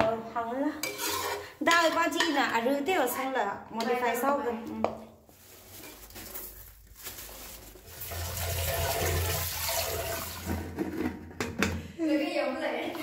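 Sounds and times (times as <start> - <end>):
water pouring: 7.8 - 10.8.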